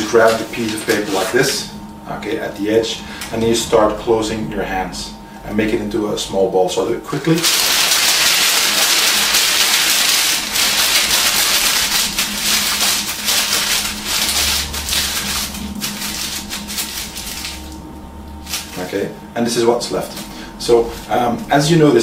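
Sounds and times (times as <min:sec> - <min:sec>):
newspaper crumpling: 0:00.0 - 0:01.6, 0:07.4 - 0:19.1.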